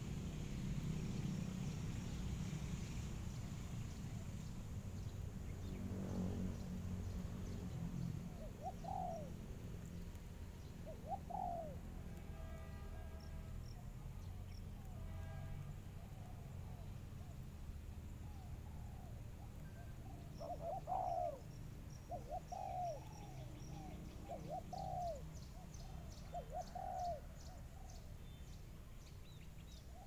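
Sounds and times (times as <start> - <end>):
doves cooing: 8.3 - 9.4, 10.8 - 11.8, 18.4 - 21.5, 22.1 - 28.0.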